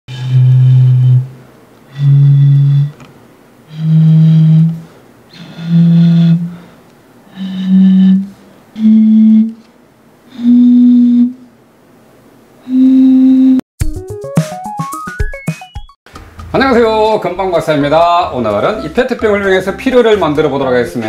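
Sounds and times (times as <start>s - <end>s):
bottle flute hoots: 0.1s - 3.0s, 3.7s - 6.7s, 7.3s - 9.6s, 10.3s - 11.5s, 12.6s - 13.6s.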